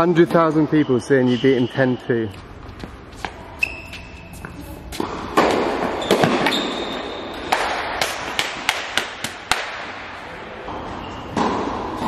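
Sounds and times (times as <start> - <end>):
racket hitting tennis ball: 4.8 - 6.6, 7.4 - 10.0.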